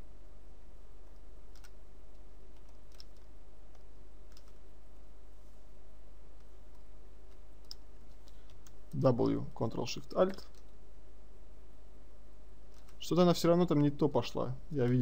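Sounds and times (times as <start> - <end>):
steady low hum: 0.0 - 15.0
mouse and keyboard clicks: 1.1 - 1.8, 2.5 - 4.6, 6.4 - 8.8, 12.7 - 13.0.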